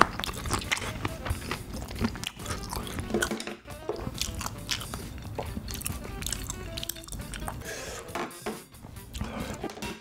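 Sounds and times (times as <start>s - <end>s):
wet chewing: 0.0s - 7.7s
background music: 0.0s - 10.0s.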